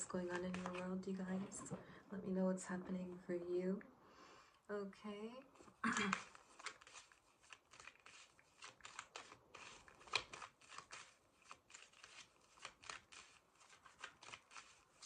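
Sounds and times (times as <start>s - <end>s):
cards being shuffled by hand: 0.0s - 1.8s, 5.5s - 15.0s.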